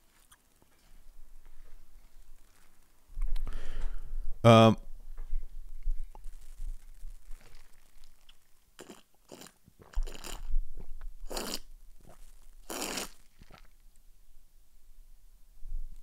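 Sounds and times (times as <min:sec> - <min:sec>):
man drinking from a glass: 0:08.8 - 0:10.5, 0:11.3 - 0:13.7.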